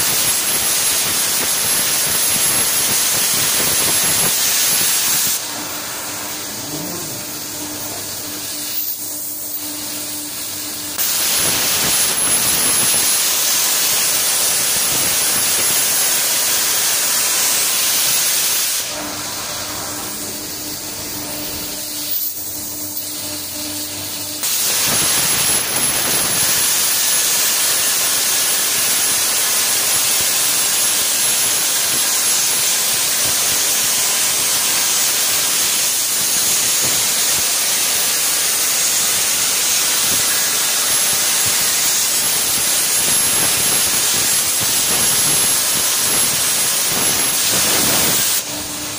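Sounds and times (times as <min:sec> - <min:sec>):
plasma arc loud hiss: 0:00.0 - 0:48.9
steady hum: 0:02.6 - 0:14.8, 0:18.8 - 0:26.0.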